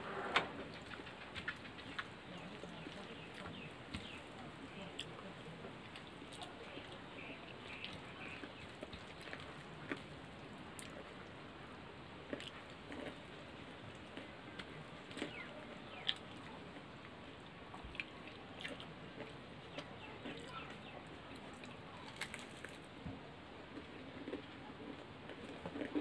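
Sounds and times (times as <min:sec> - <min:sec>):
people chewing and slurping: 0:00.1 - 0:26.0.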